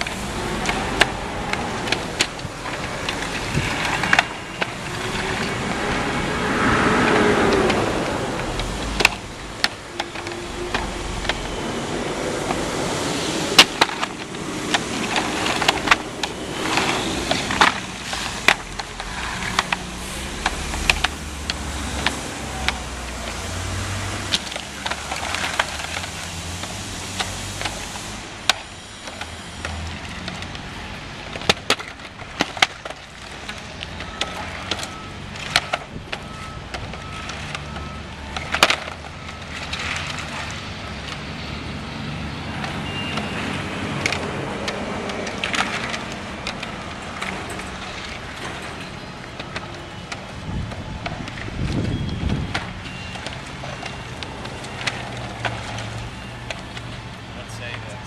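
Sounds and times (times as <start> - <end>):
plastic panels clacking on asphalt: 0.0 - 41.3, 42.5 - 58.0.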